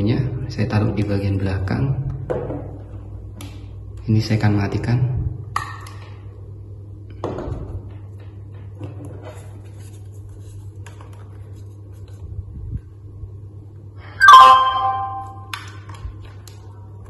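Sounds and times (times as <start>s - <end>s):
low steady hum: 9.6s - 17.0s
loud electronic chime: 14.2s - 15.5s.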